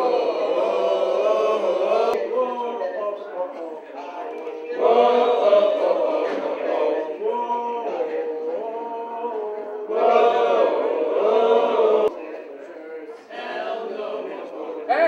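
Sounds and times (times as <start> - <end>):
group singing in unison: 0.0 - 2.2, 4.4 - 12.2, 13.2 - 15.0.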